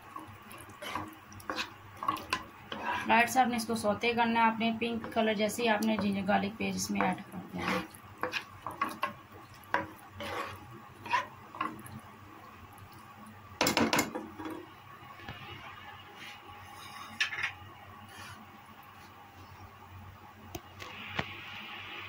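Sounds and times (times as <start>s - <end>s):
onions frying in oil: 0.0s - 15.8s
spoon scraping a pan: 0.1s - 3.3s, 6.9s - 12.0s, 16.7s - 18.4s.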